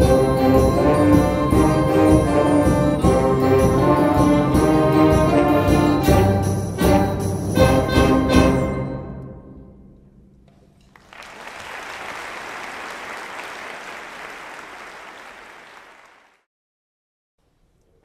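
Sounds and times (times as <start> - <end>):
audience applauding: 10.9 - 16.5.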